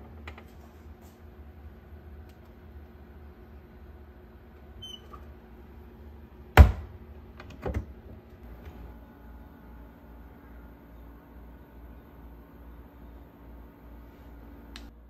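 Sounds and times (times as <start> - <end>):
cabinet door shutting: 6.6 - 6.9.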